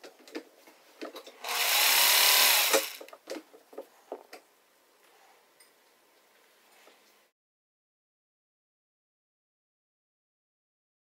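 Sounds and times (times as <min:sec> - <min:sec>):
sewing machine whirring: 0:01.4 - 0:03.2.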